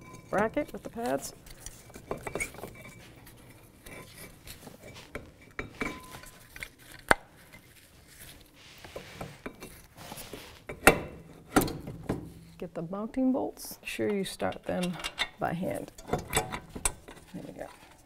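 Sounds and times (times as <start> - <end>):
metal clinks and knocks: 0.0 - 6.5.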